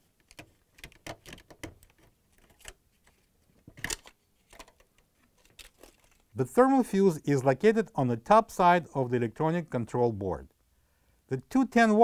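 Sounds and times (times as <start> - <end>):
small plastic clicks and knocks: 0.2 - 6.3.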